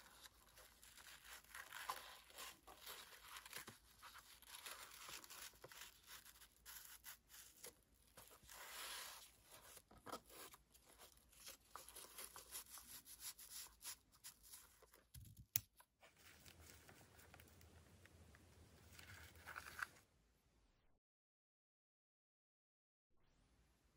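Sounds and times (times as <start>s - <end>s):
ribbon rustling and scraping: 0.0s - 15.1s, 16.0s - 17.8s, 18.8s - 20.0s.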